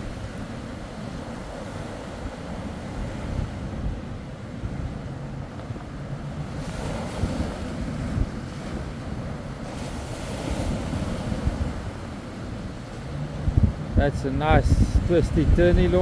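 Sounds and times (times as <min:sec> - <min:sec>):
surf breaking on beach: 0:00.0 - 0:16.0
wind rumbling on microphone: 0:00.0 - 0:16.0.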